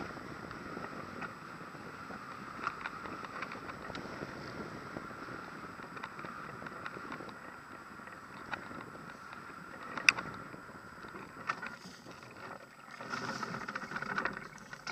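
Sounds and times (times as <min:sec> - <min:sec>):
wind rushing over camera: 0:00.0 - 0:14.9
frame clicks and rattles: 0:11.2 - 0:14.9.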